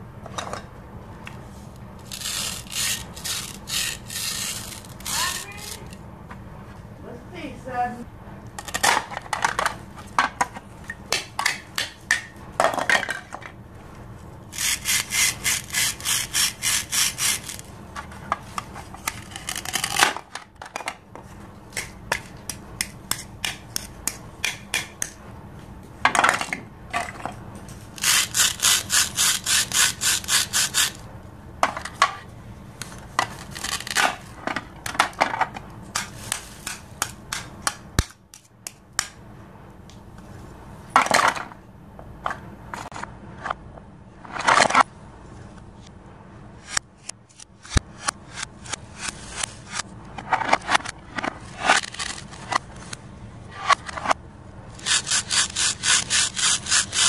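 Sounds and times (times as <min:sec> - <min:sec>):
toy knife sawing plastic: 0:02.0 - 0:06.0, 0:14.5 - 0:17.7, 0:28.0 - 0:31.0, 0:54.8 - 0:57.0.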